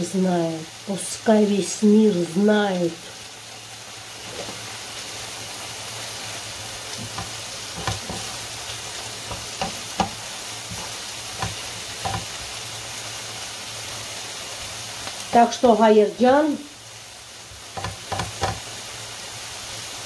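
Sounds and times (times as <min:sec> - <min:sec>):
spinach sizzling in a frying pan: 0:00.0 - 0:20.0
utensil knocking against pan: 0:07.0 - 0:08.3, 0:09.3 - 0:10.8, 0:11.4 - 0:12.4, 0:17.8 - 0:18.6.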